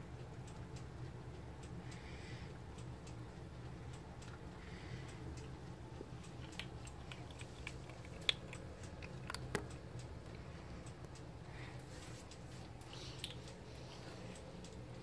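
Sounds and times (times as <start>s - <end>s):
kitten chewing crunches: 5.1s - 15.0s.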